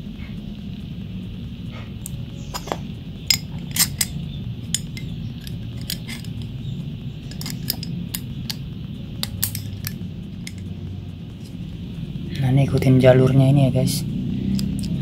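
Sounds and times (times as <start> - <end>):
metallic clicks of knife parts: 2.0 - 6.5, 7.3 - 8.6, 9.2 - 10.7.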